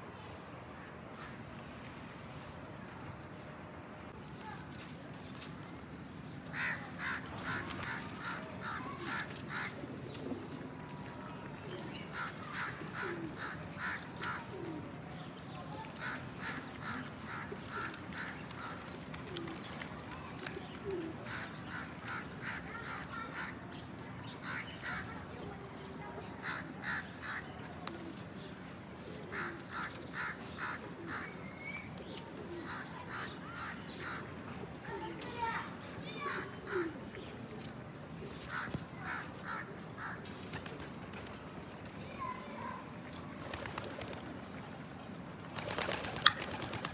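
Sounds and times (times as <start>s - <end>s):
crow cawing: 6.5s - 9.8s, 12.2s - 14.5s
pigeons cooing: 11.6s - 15.0s.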